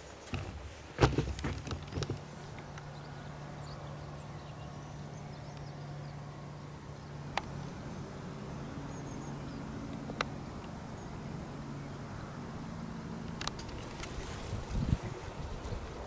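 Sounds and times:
low engine hum: 0:00.0 - 0:16.0
sharp clicks: 0:13.2 - 0:14.5.

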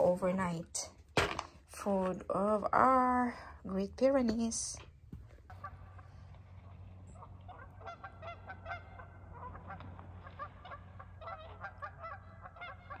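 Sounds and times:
geese honking: 0:05.5 - 0:13.0.

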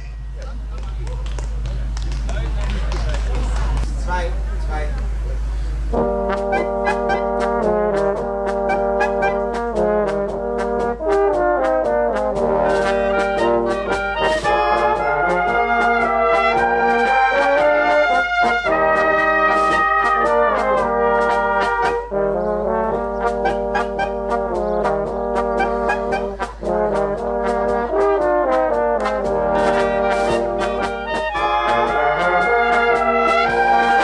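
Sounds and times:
trumpets and trombones melody: 0:05.8 - 0:34.0
steady beat: 0:05.9 - 0:34.0.

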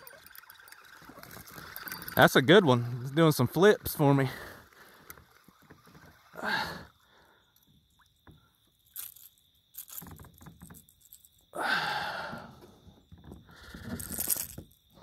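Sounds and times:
fishing tackle clicks: 0:08.9 - 0:11.4, 0:13.8 - 0:14.6.

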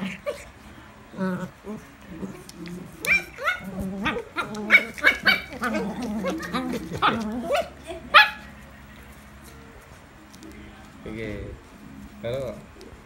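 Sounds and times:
puppies yapping and barking: 0:01.5 - 0:08.6.

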